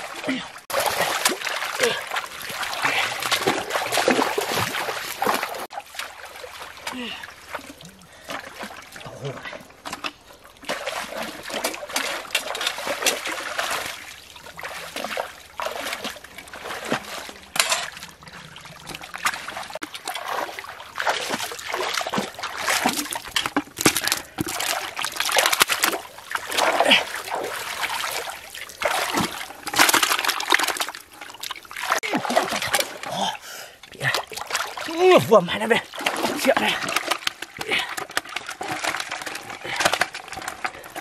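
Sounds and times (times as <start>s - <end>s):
splashing of shallow muddy water: 0.0s - 41.0s.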